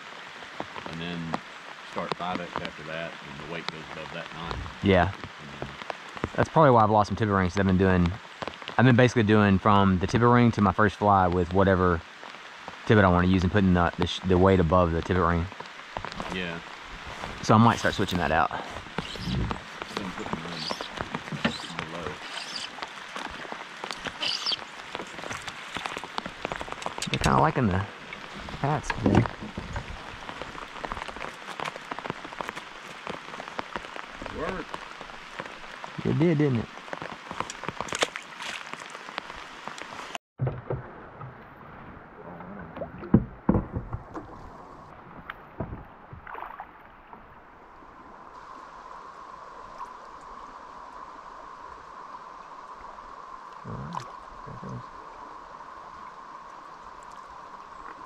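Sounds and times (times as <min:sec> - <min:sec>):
rain falling on a river: 0:00.0 - 0:40.2, 0:43.8 - 0:58.0
moving water wash: 0:00.0 - 0:47.3
person's voice: 0:00.9 - 0:05.8, 0:06.4 - 0:08.2, 0:08.8 - 0:12.0, 0:12.9 - 0:15.5, 0:16.2 - 0:16.6, 0:17.4 - 0:20.8, 0:21.4 - 0:22.2, 0:27.0 - 0:27.9, 0:28.5 - 0:29.6, 0:34.2 - 0:34.7, 0:36.0 - 0:36.7, 0:53.7 - 0:54.8
heavy splashes and knocks: 0:15.5 - 0:27.6, 0:40.4 - 0:41.8, 0:42.8 - 0:44.5, 0:45.1 - 0:47.3.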